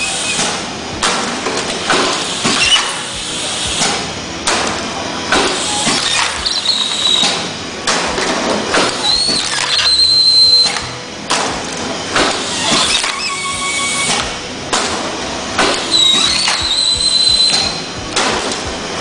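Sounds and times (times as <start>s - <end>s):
pneumatic machine clacking: 0.0s - 19.0s
thin high whistle: 12.5s - 14.4s, 15.8s - 17.9s.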